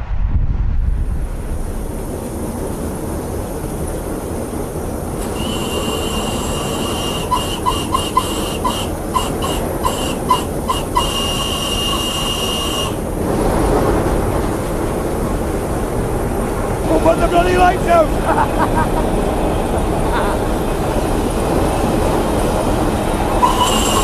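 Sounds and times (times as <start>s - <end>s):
steam locomotive whistle: 5.2s - 13.0s, 23.3s - 24.0s.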